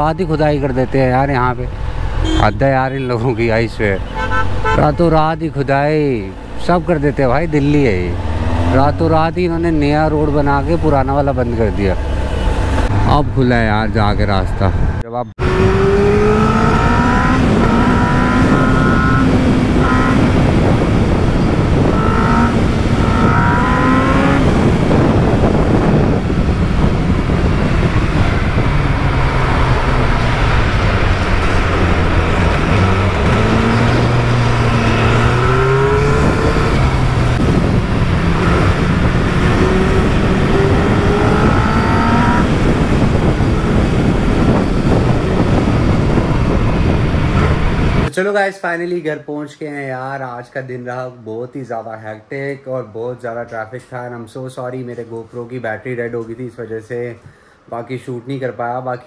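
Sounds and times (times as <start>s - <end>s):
wind and road noise: 0.0s - 48.2s, 49.8s - 59.0s
motorcycle engine accelerating: 15.4s - 48.1s.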